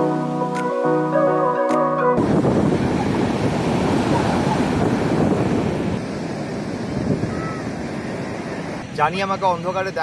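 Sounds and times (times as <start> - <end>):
sea surf breaking on beach: 2.2 - 10.0.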